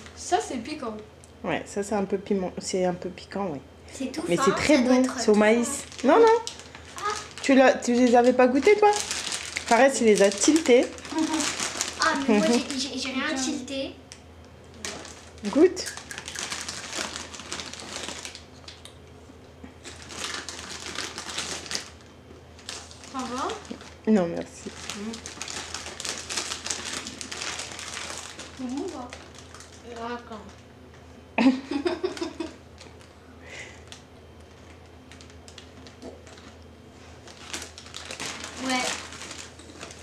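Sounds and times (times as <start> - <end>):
low steady hum: 0.0 - 40.0
snack packet crinkling and crunching: 4.4 - 13.1, 14.7 - 19.0, 19.8 - 30.6, 33.8 - 40.0
small clicks and crackles: 24.6 - 30.6, 33.8 - 36.6, 37.2 - 40.0.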